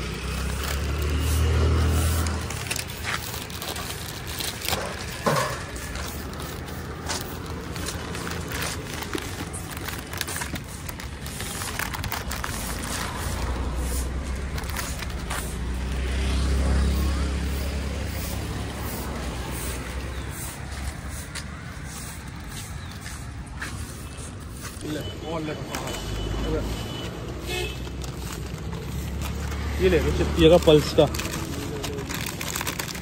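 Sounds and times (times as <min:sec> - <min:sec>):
vehicle engine humming: 0:00.0 - 0:33.0.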